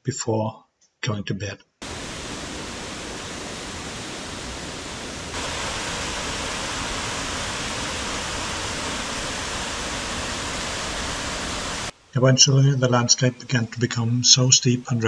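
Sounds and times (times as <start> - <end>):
waterfall rushing into pools: 1.8 - 12.0.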